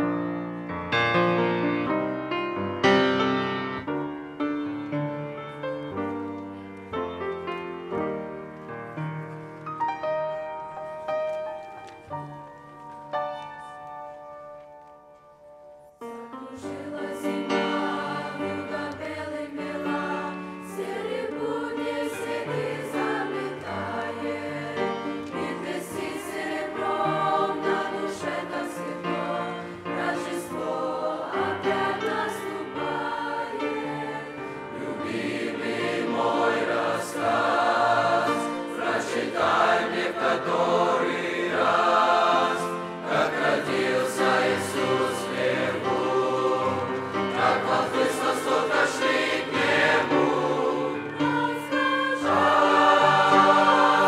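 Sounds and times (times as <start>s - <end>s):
mixed choir singing: 16.4s - 54.0s.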